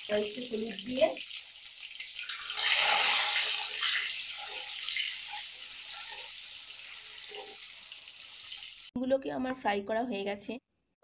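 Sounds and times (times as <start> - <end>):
eggs sizzling in hot oil: 0.0 - 9.0
spatula scraping and knocking pan: 2.6 - 7.8.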